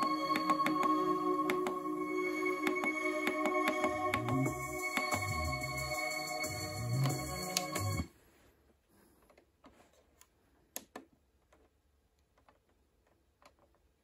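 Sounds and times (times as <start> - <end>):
music from car radio: 0.0 - 8.1.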